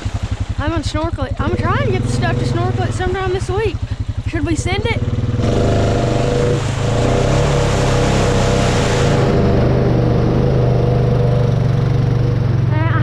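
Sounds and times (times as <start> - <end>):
quad bike engine running: 0.0 - 13.0
tyres churning through mud: 0.0 - 13.0.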